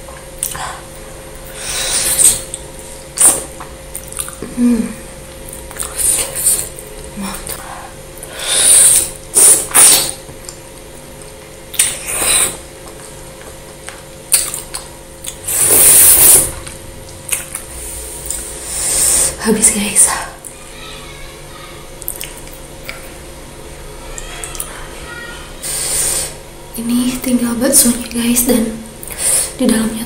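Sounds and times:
mouth smacking clicks: 13.8s - 18.4s, 22.0s - 23.1s.

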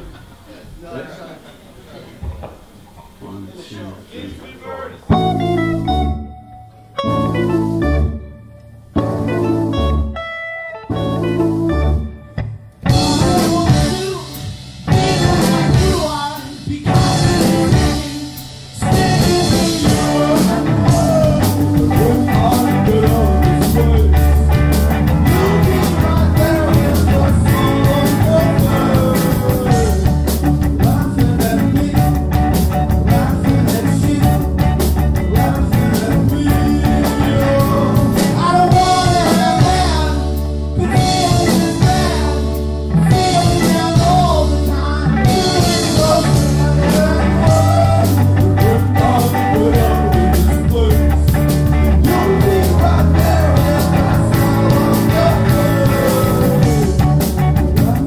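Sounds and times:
low bass notes: 5.0s - 58.0s
electric guitar: 5.1s - 58.0s
drum kit: 12.4s - 58.0s.

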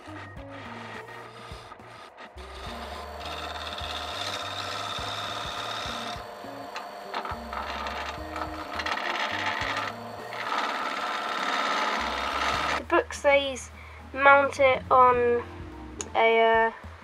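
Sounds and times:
gouge scraping wood: 0.0s - 12.8s
wood lathe running: 0.0s - 12.8s.

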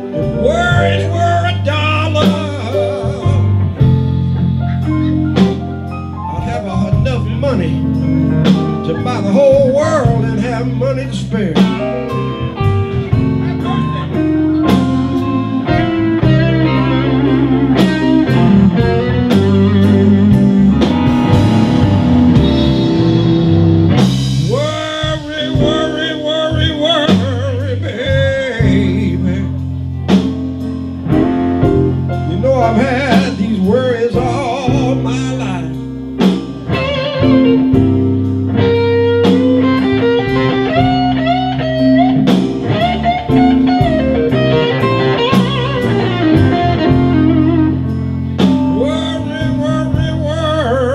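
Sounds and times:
blues band playing: 0.0s - 50.9s
electric guitar lead: 0.0s - 50.9s.

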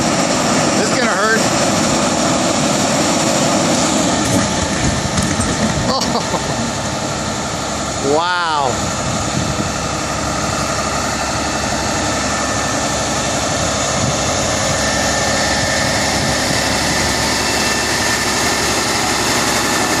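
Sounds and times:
diesel truck engine running: 0.0s - 20.0s.

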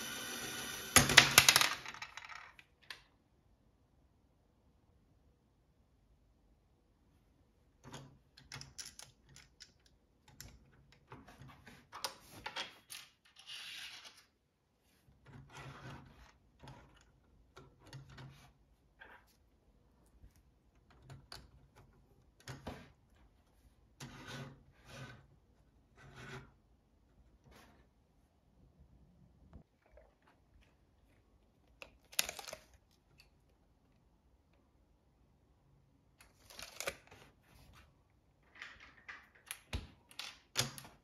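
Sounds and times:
plastic parts clicking and knocking: 7.8s - 13.4s, 38.4s - 41.0s
plastic scrape: 15.2s - 17.0s, 24.0s - 26.6s.

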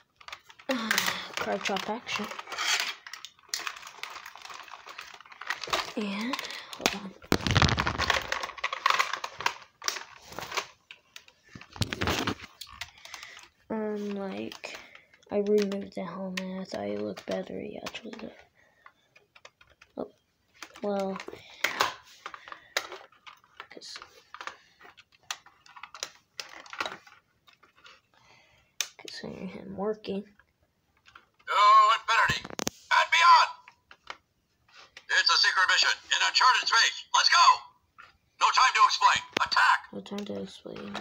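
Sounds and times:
plastic action figure clattering: 0.1s - 13.6s, 14.2s - 20.0s, 20.6s - 28.0s, 31.0s - 34.2s, 38.7s - 41.0s.

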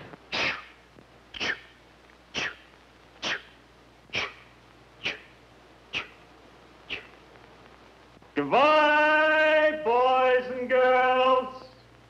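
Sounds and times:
person imitating steam train puffs: 0.3s - 6.2s, 6.9s - 7.1s.

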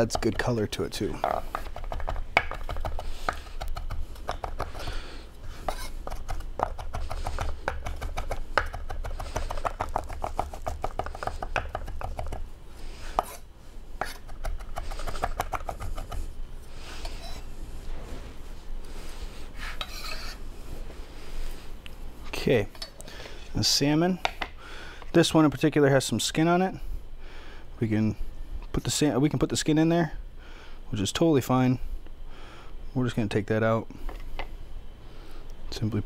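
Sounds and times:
knife chopping on wooden board: 1.4s - 4.7s, 5.7s - 12.4s.

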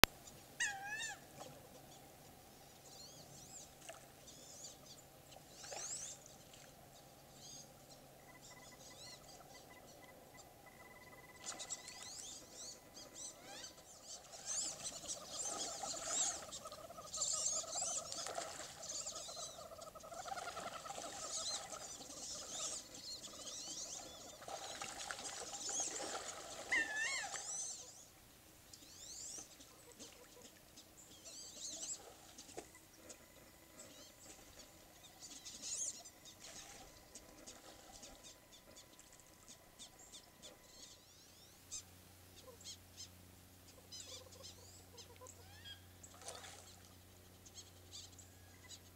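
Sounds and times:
ducks squeaky whistles: 8.3s - 28.0s.

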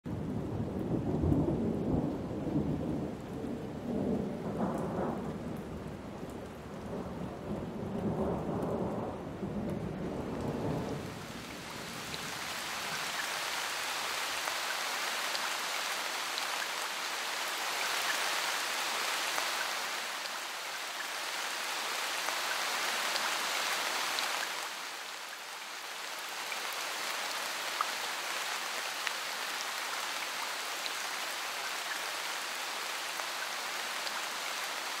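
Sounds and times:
rolling thunder: 0.2s - 11.3s
rain hiss: 0.4s - 35.0s.

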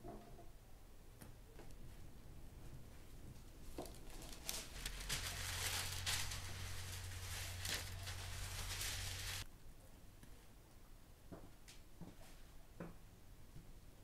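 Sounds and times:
low steady hum: 0.6s - 10.2s
parchment paper rustling and crinkling: 2.8s - 9.5s.

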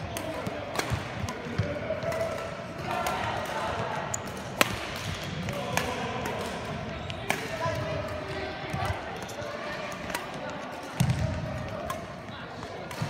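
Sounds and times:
rackets hitting shuttlecock: 0.0s - 13.0s.

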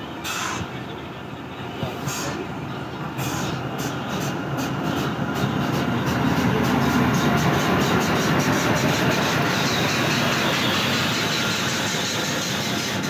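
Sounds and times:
train passing: 0.0s - 13.0s
wheels clicking over rail joints: 3.1s - 13.0s.

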